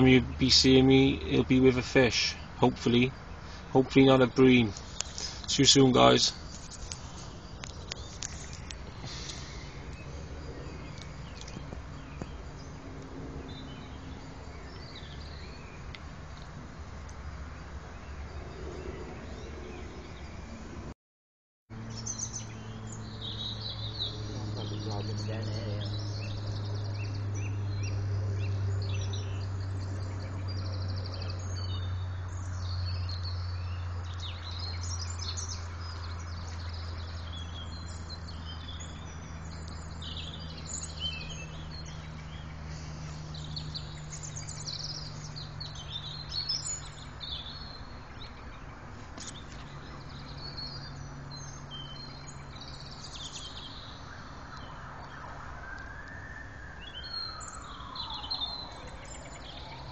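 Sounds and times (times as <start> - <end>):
songbirds chirping: 0.0 - 20.9, 21.7 - 59.9
siren wail: 54.2 - 59.9.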